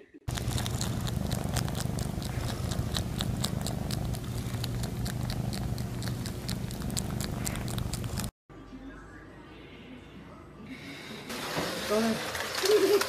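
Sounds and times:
cat purring: 0.3s - 8.3s.

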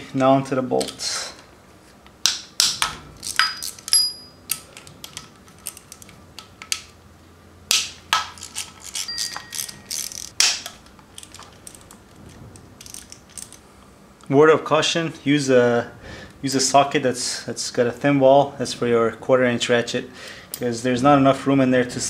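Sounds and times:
metallic clinks: 3.3s - 4.4s, 9.0s - 10.4s
ratchet clicking: 8.4s - 10.4s.

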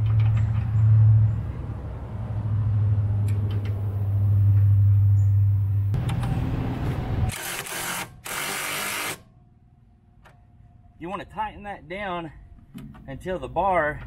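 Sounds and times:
impact wrench: 7.3s - 9.2s.

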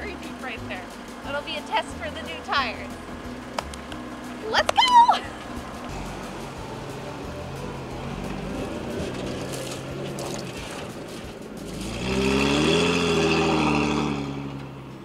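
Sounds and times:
truck engine revving in sand: 5.5s - 15.0s.

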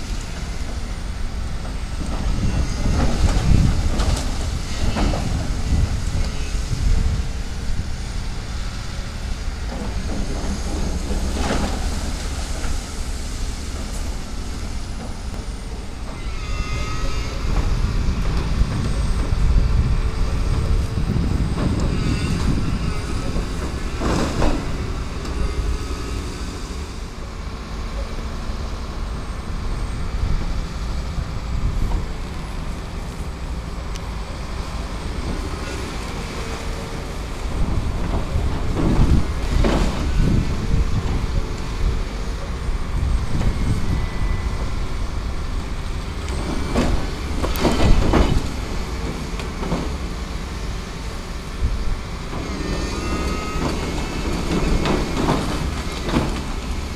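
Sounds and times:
excavator diesel engine: 0.0s - 56.9s
brief high squeals: 16.1s - 17.9s, 52.5s - 54.2s.

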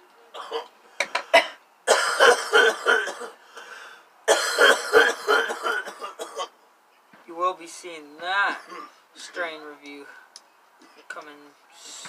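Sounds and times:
man coughing hard: 1.3s - 3.4s, 4.3s - 6.5s, 8.4s - 9.0s.

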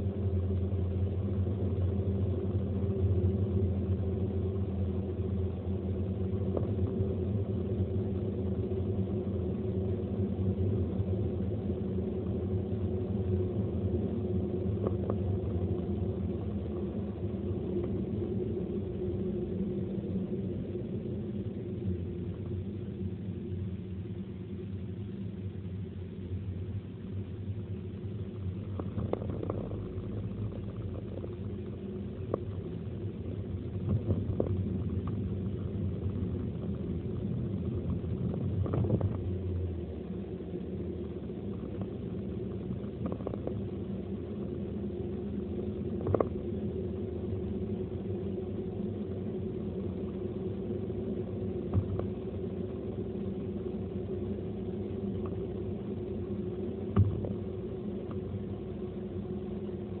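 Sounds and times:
car engine and road drone: 0.0s - 60.0s.

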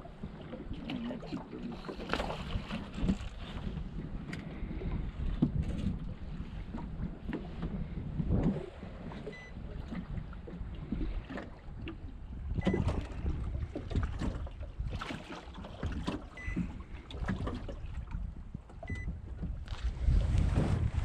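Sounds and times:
waves lapping against metal hull: 0.0s - 21.0s
wind buffeting microphone: 0.0s - 21.0s
small knocks and splashes: 12.6s - 20.0s.

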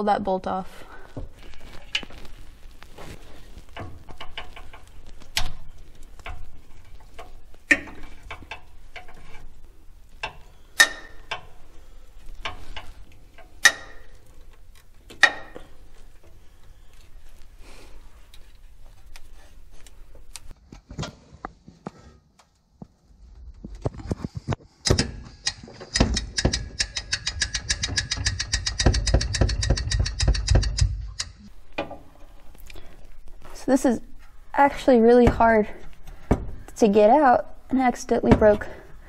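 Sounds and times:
socket ratchet clicking: 24.9s - 31.5s.

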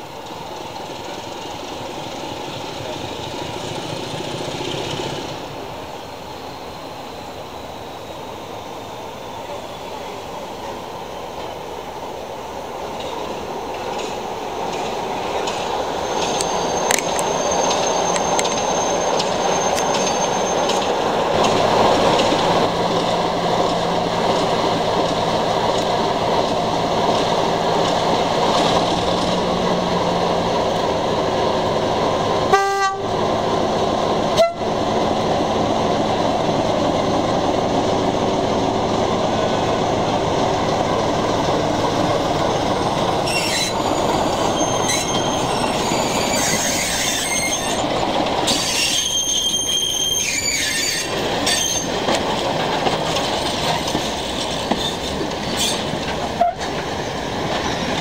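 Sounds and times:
diesel locomotive engine running: 0.0s - 58.0s
train horn toot: 32.5s - 33.1s, 34.4s - 34.7s, 56.4s - 56.7s.

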